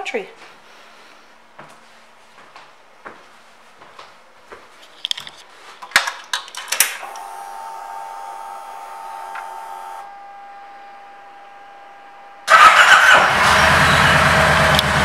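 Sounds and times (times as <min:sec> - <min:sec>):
fuel pump electric whir: 0:07.0 - 0:15.0
faint steady whine: 0:07.1 - 0:12.5.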